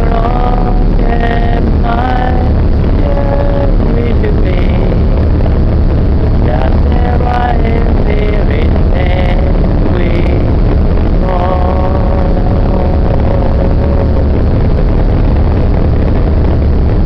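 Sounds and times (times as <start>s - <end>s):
person singing: 0.0s - 5.2s, 6.3s - 14.7s
boat engine droning: 0.0s - 17.0s
rushing boat wake: 0.0s - 17.0s.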